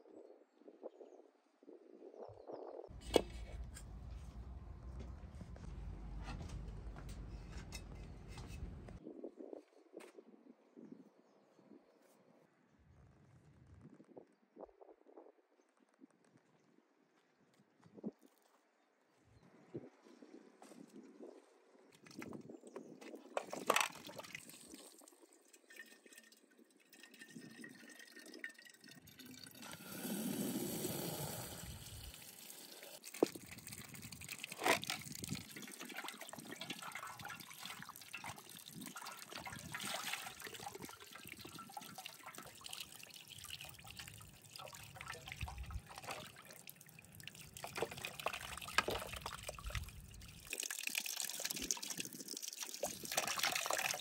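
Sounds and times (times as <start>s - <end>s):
water trickling and splashing: 21.9s - 54.0s.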